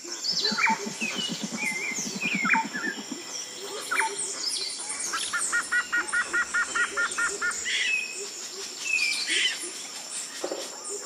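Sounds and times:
high insect whine: 0.0 - 11.0
bird chirps: 0.2 - 9.8.

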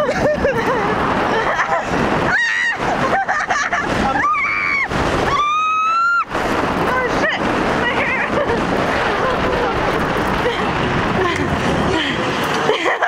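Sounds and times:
roller coaster wind and train rush: 0.0 - 13.0
riders screaming: 1.4 - 10.7.

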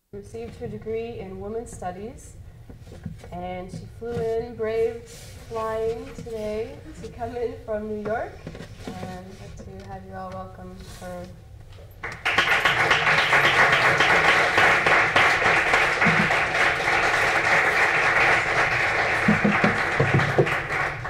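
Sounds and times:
audience applauding: 12.0 - 21.0.

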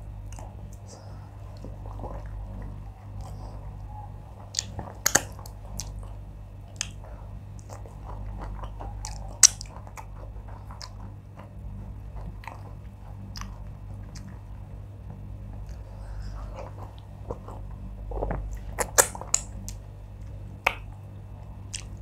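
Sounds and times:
person chewing: 4.4 - 14.5, 15.6 - 20.8, 21.7 - 22.0.

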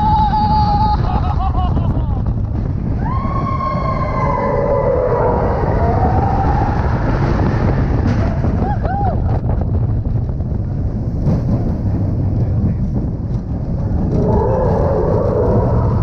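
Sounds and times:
rider whooping: 0.0 - 9.5, 14.0 - 16.0
roller coaster train rumbling: 0.0 - 16.0
wind buffeting microphone: 0.0 - 16.0.

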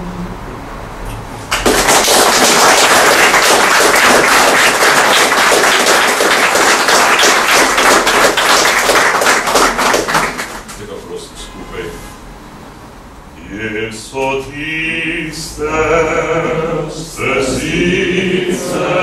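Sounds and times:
audience applause: 1.5 - 10.8.

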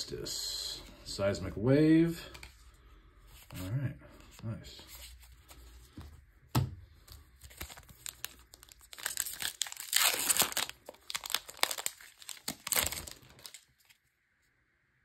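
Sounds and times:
foil wrapper crinkling and tearing: 7.4 - 14.0.

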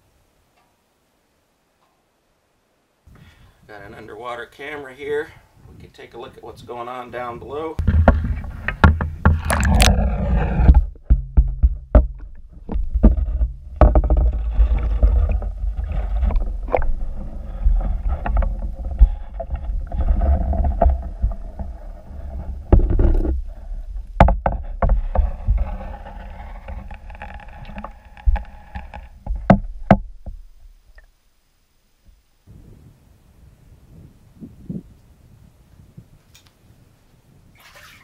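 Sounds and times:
knocks and clicks of handling: 7.8 - 9.9, 10.6 - 21.7, 24.1 - 25.7, 26.6 - 31.1
water sloshing against housing: 7.8 - 30.8, 37.6 - 38.0
muffled low underwater rumble: 7.8 - 30.9.

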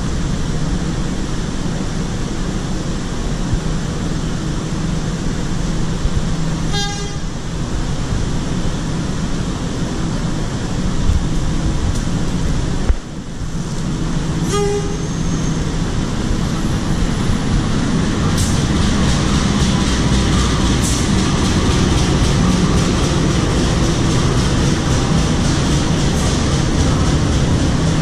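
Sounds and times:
low locomotive engine rumble: 0.0 - 28.0
locomotive horn blasts: 6.7 - 7.4, 14.4 - 15.6.

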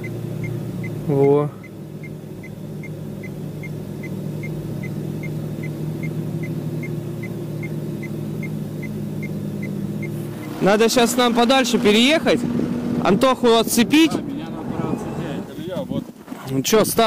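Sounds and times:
faint high-pitched ticking: 0.0 - 10.5
car engine idling: 0.0 - 17.0.

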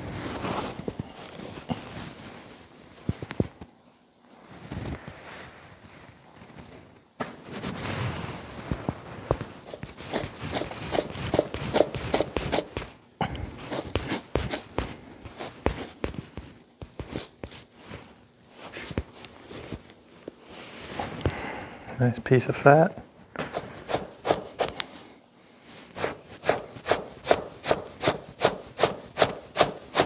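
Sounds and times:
knife scraping hide: 9.6 - 16.3, 23.4 - 24.8, 25.9 - 30.0.

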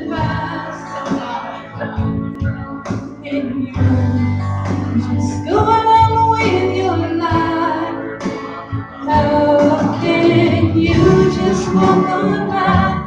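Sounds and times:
instrumental accompaniment: 0.0 - 13.0
person singing into a microphone: 0.0 - 13.0.

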